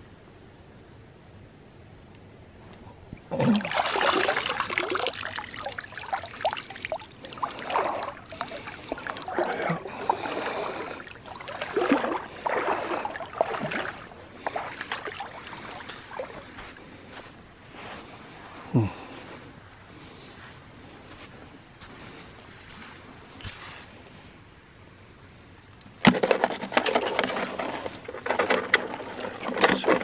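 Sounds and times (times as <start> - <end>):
water splashing and sloshing: 3.1 - 17.4, 25.6 - 30.0.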